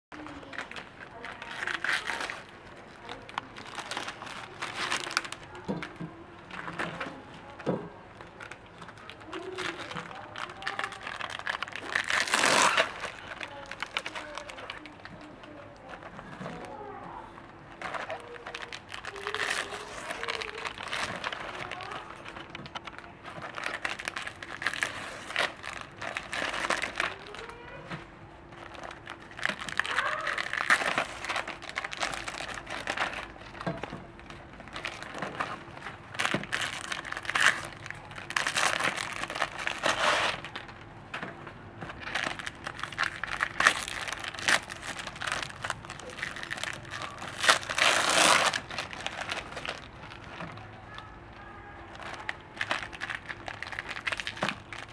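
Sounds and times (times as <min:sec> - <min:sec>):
plastic wrappers crinkling: 0:00.1 - 0:54.9.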